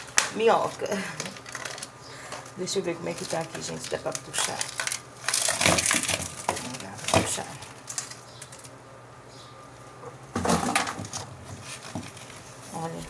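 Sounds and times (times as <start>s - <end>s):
plant leaves rustling: 0.0s - 8.8s, 11.4s - 13.0s.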